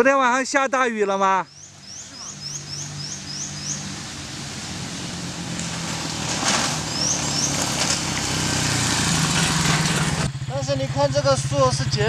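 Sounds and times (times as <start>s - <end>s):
bird chirping: 1.2s - 5.6s, 6.8s - 8.0s
motorcycle engine running: 1.5s - 12.0s.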